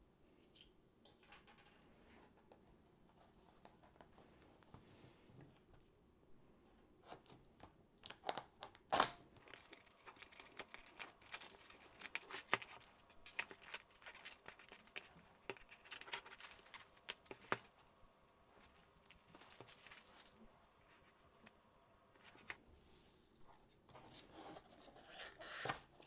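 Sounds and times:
plastic wrap crinkling: 8.8s - 21.1s.

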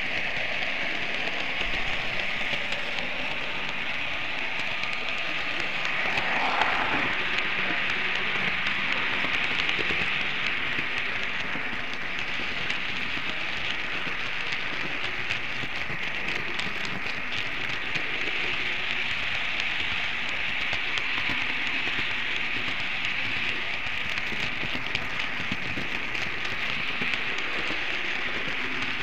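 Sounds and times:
model train rolling hiss: 0.0s - 29.0s
wheels clicking on rails: 0.0s - 29.0s.

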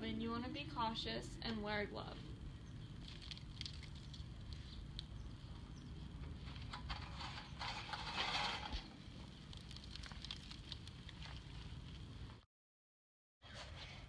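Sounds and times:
metal tin scraping over foil: 6.6s - 8.9s.

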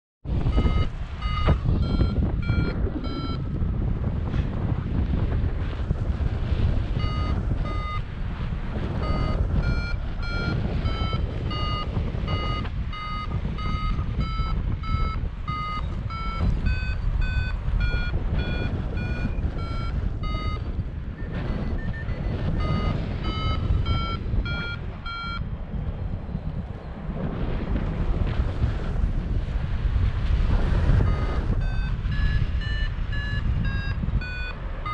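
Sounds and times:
wind on microphone: 0.2s - 34.9s
variometer beeping in short pulses: 0.5s - 3.5s, 7.0s - 8.0s, 9.0s - 25.4s, 31.0s - 34.9s.

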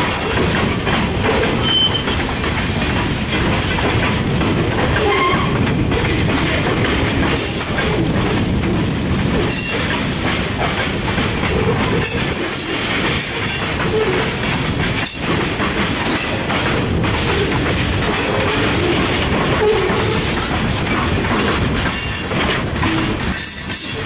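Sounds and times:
freight train rolling past: 0.0s - 24.0s
train wheel squeals: 1.4s - 3.5s, 5.0s - 5.6s, 8.4s - 10.0s, 11.5s - 14.4s, 16.0s - 16.6s, 21.8s - 24.0s.

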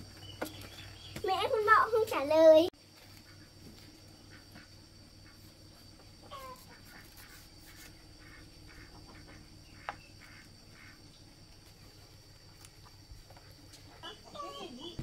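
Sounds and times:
steady background hum: 0.0s - 15.0s
chickens clucking: 4.1s - 11.3s, 12.4s - 15.0s.

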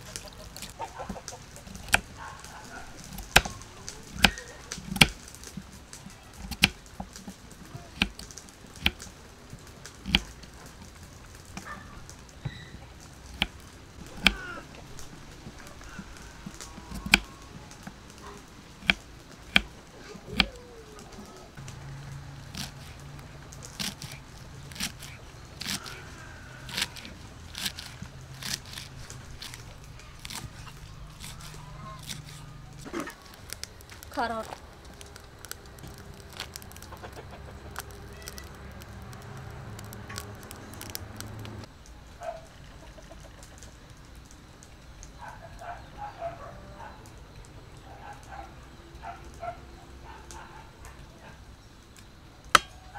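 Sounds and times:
knife chopping on wooden board: 3.1s - 5.2s, 10.0s - 10.3s.

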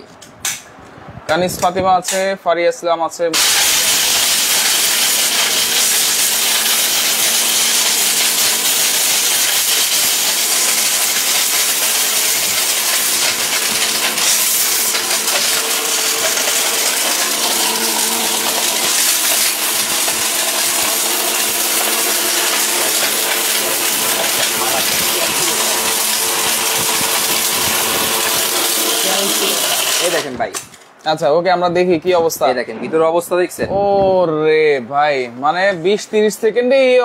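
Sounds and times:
electric blender grinding: 3.4s - 30.4s.

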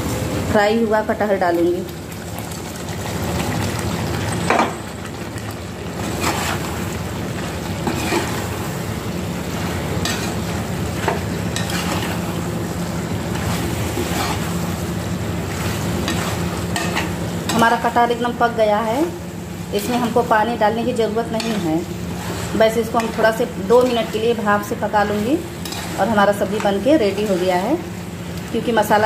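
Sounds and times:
food sizzling in oil: 0.0s - 29.0s
spatula scraping pan: 6.0s - 6.9s, 7.8s - 8.6s, 9.6s - 12.4s, 13.2s - 14.8s, 15.5s - 17.9s, 21.2s - 27.7s.

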